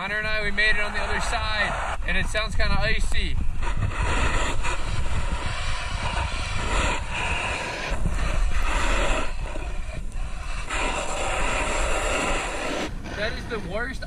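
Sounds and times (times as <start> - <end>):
wind rumbling on microphone: 0.0 - 14.0
snowboard scraping over icy snow: 3.7 - 13.8.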